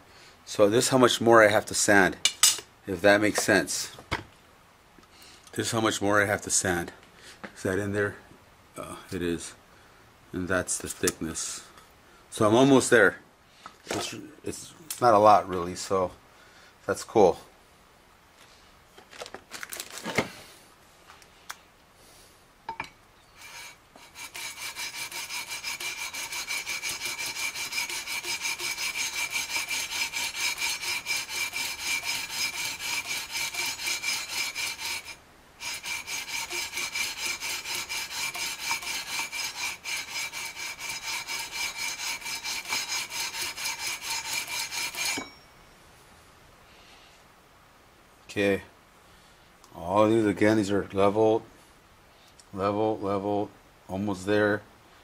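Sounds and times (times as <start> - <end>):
sandpaper scraping metal frets: 23.4 - 45.2.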